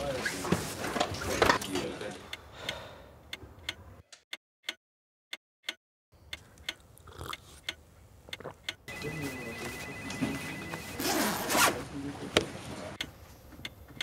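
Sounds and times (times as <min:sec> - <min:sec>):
clock ticking: 0:02.3 - 0:03.9
fast pulsing beep: 0:08.9 - 0:11.2
steady high electronic tone: 0:08.9 - 0:11.2
room noise: 0:08.9 - 0:13.3.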